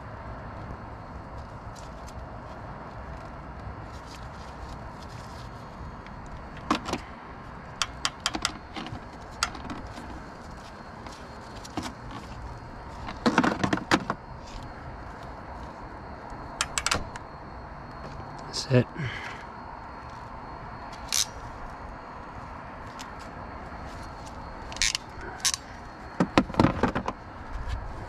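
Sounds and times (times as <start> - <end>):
crimping tool clicking and rattling: 7.8 - 9.9, 16.6 - 17.0.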